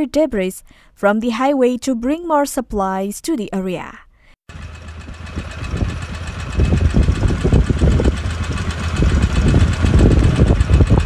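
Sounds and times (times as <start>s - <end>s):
storm wind buffeting microphone: 5.0s - 11.0s.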